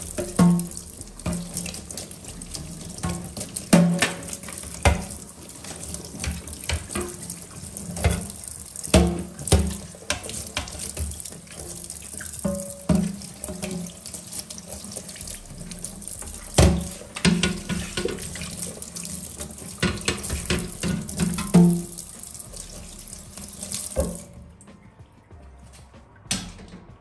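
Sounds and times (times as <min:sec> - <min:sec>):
tap running into a sink: 0:00.0 - 0:24.4.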